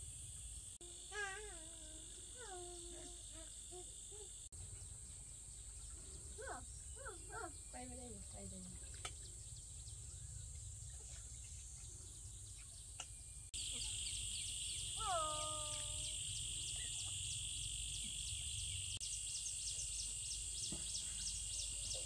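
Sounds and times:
high-pitched insect drone: 0.0s - 4.4s, 13.6s - 19.5s
birds calling: 1.1s - 22.0s
drawn-out falling call: 14.9s - 16.2s.

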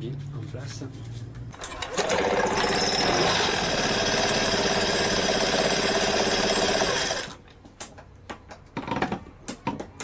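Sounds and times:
scooter engine running: 1.7s - 7.3s.

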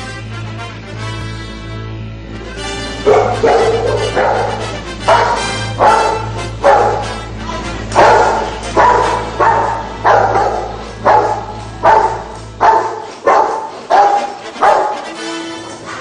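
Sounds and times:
large dog barking: 3.0s - 15.2s.

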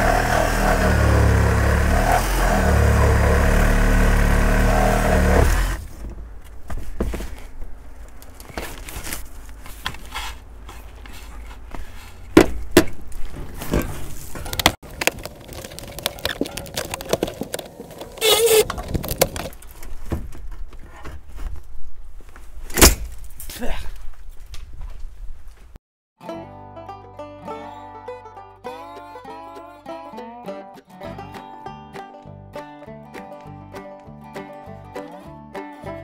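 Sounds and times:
power tool running: 0.0s - 5.8s
metal clunks and rattles: 5.4s - 7.7s.

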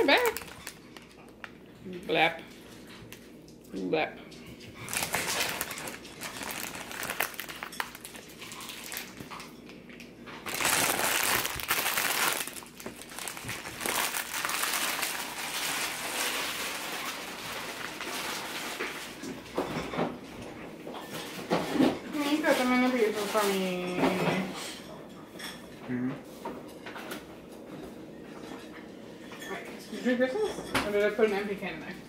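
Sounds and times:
plastic packaging crinkling: 0.0s - 1.6s, 4.8s - 9.5s, 10.4s - 19.2s.

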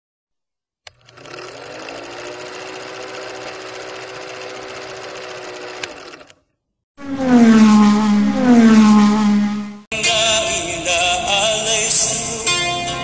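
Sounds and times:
film projector clattering: 0.9s - 6.4s.

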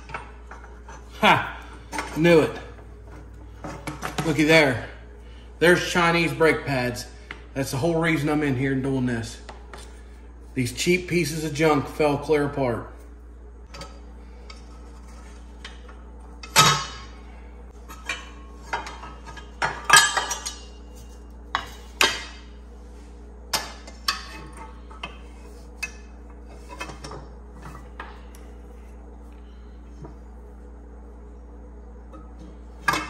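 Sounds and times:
low hum: 0.0s - 33.0s
metal clanks and scrapes: 23.8s - 28.0s.

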